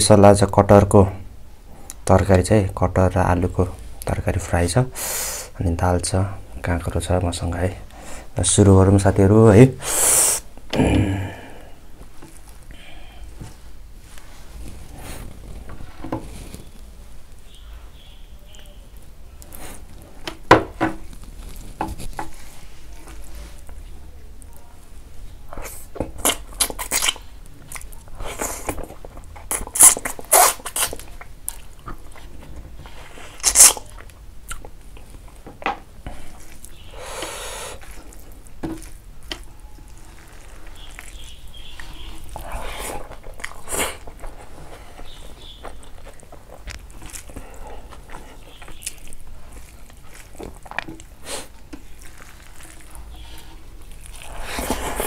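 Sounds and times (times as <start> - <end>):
person chewing food: 25.5 - 55.0
fingers mixing rice on metal plate: 36.1 - 55.0.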